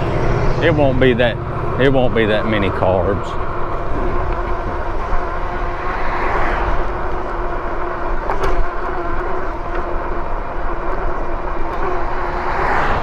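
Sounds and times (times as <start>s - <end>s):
steady low hum: 0.0s - 12.7s
road noise: 0.0s - 13.0s.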